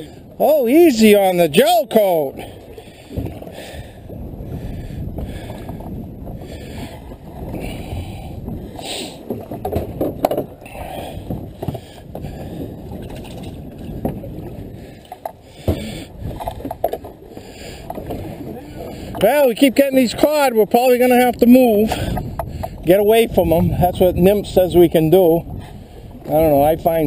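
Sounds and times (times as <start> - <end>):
water lapping against boat hull: 0.0 - 27.0
knocks on boat: 15.6 - 17.0.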